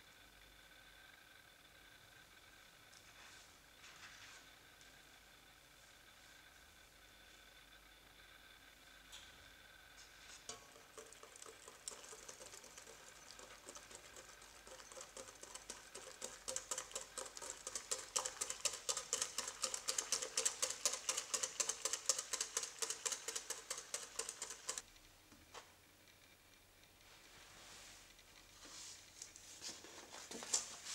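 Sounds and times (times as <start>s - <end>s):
whisk beating in ceramic bowl: 10.5s - 24.8s.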